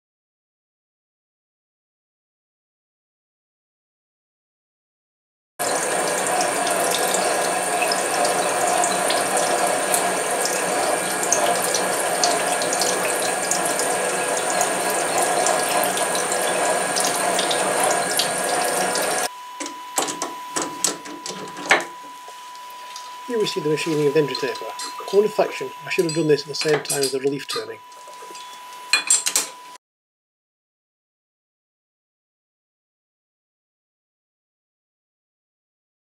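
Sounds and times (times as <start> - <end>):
coolant splashing: 5.6 - 19.3
lathe machinery running: 5.6 - 19.3, 22.8 - 27.8.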